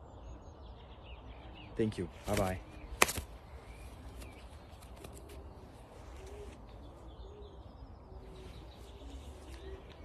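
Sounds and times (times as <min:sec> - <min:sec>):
faint songbird chirps: 0:00.0 - 0:10.0
pigeons cooing: 0:02.6 - 0:10.0.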